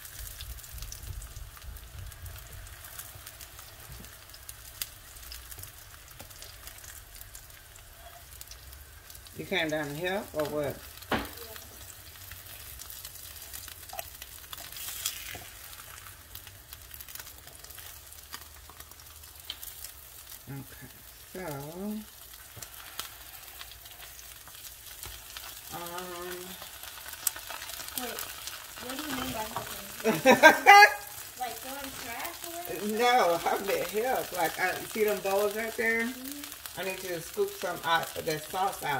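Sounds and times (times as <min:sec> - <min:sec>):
food sizzling in oil: 0:00.0 - 0:38.9
person speaking: 0:28.8 - 0:38.9.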